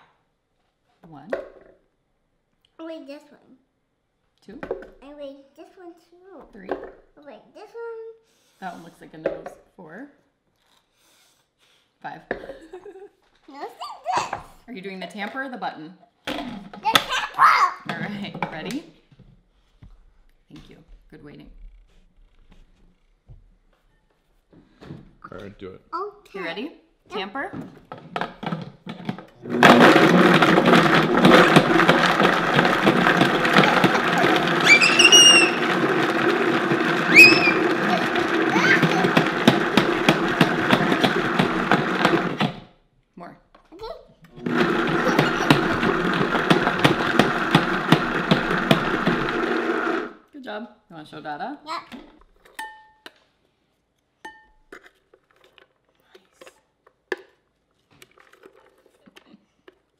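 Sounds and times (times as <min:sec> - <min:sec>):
child squealing: 0:17.2 - 0:17.8, 0:34.0 - 0:35.9, 0:37.0 - 0:39.2
spatula scraping plastic container: 0:28.0 - 0:42.6, 0:44.4 - 0:50.1
blender blades clattering: 0:28.4 - 0:42.6, 0:44.4 - 0:50.2
blender running loud: 0:29.4 - 0:42.6, 0:44.4 - 0:50.2.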